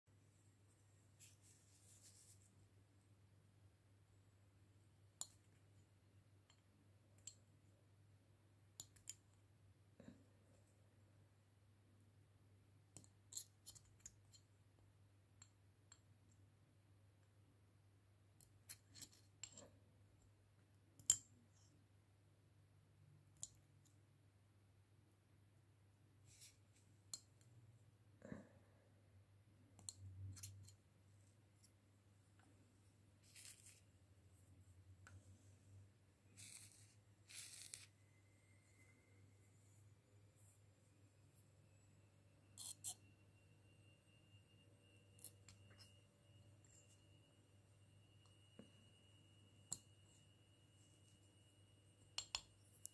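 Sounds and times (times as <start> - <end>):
low steady hum: 14.1 - 52.9.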